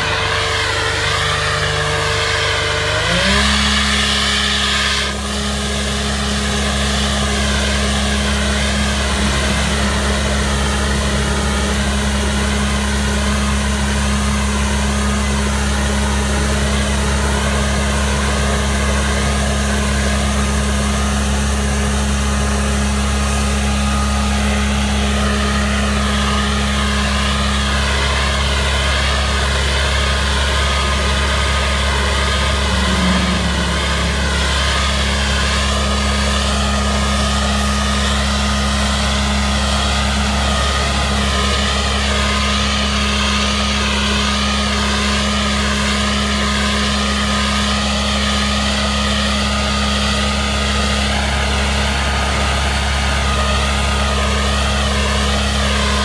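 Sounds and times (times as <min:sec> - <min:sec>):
machine engine and blower drone: 0:00.0 - 0:56.0
stone chips blown through nozzle: 0:30.7 - 0:39.0.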